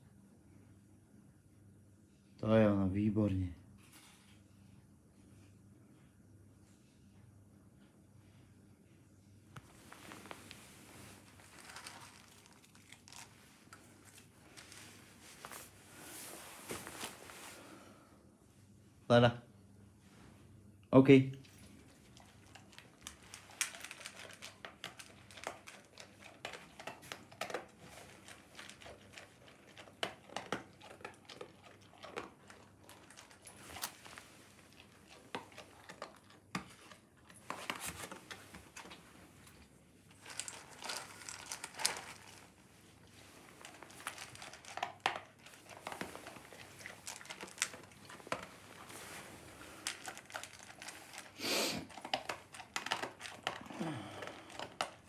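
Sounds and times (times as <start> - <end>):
dog crunching dry kibble: 9.6 - 15.8, 21.4 - 55.0.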